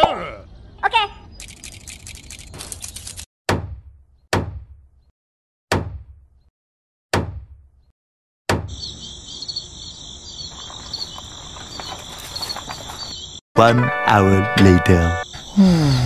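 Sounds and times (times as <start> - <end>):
crickets chirping: 8.7 - 13.4, 15.2 - 16.0.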